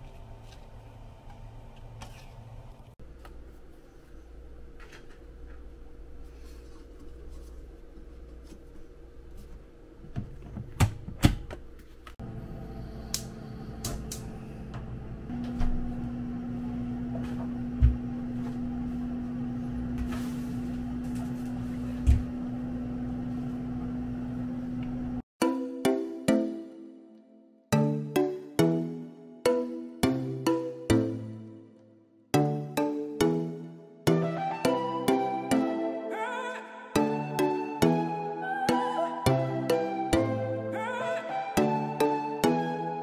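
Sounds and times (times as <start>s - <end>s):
steady hum: 0.0s - 25.2s.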